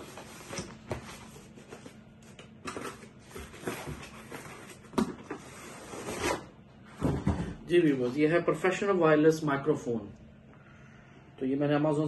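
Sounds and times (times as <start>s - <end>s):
cardboard box rustling and scraping: 2.7s - 6.5s.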